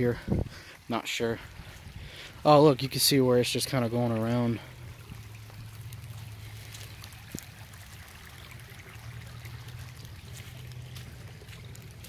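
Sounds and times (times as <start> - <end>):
water drips and ticks: 0.0 - 12.0
water flowing in creek: 0.0 - 12.0.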